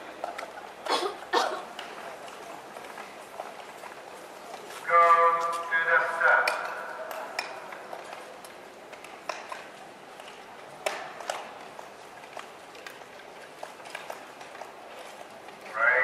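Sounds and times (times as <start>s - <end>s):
skating rink background noise: 0.0s - 16.0s.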